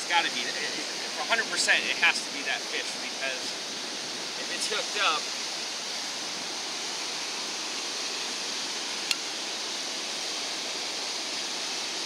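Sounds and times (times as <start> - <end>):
ocean surf breaking: 0.0 - 7.0.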